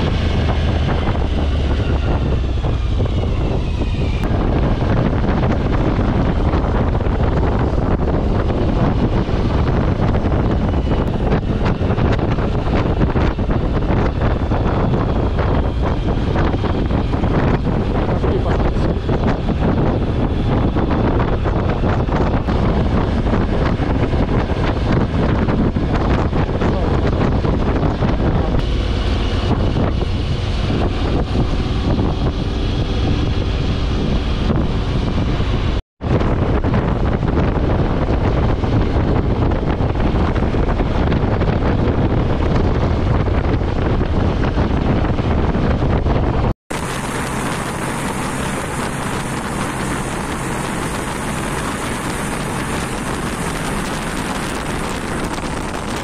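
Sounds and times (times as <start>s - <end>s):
motorcycle road and engine noise: 0.0s - 56.0s
wind rushing over microphone: 0.0s - 56.0s.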